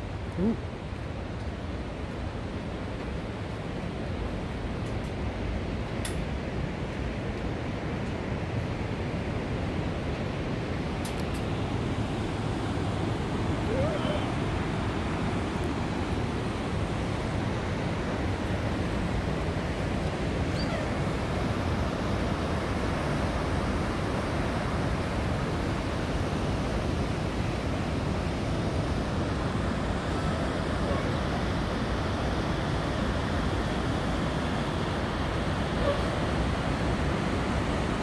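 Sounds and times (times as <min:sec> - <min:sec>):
mountain stream rushing: 0:08.8 - 0:38.0.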